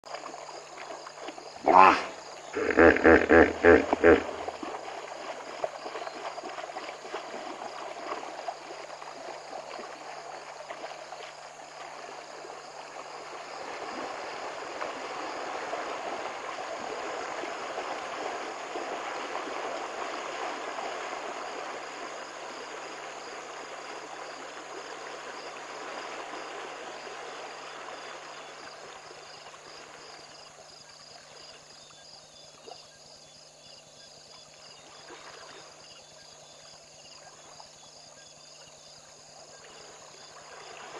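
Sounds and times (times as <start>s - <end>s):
night insects chorus: 0.1s - 40.9s
water rushing: 1.6s - 5.0s.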